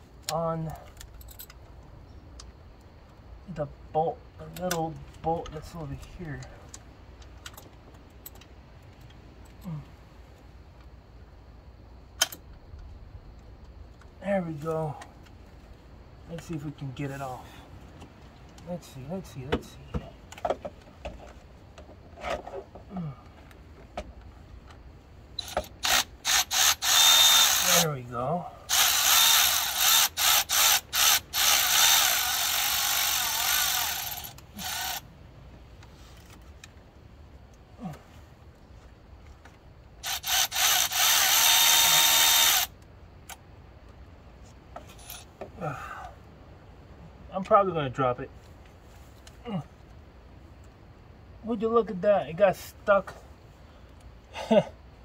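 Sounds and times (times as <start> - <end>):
cordless power tool bursts: 25.4 - 27.9, 28.7 - 35.0, 40.0 - 42.7.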